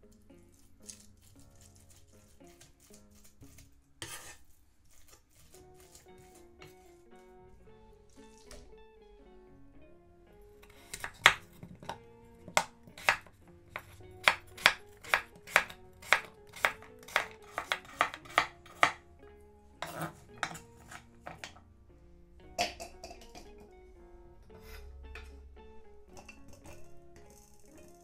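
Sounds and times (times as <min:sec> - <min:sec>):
quiet guitar music: 0:00.0 - 0:04.2, 0:05.3 - 0:28.0
knife chopping on cutting board: 0:01.7 - 0:04.4, 0:05.0 - 0:06.9, 0:10.7 - 0:19.0, 0:19.8 - 0:21.6.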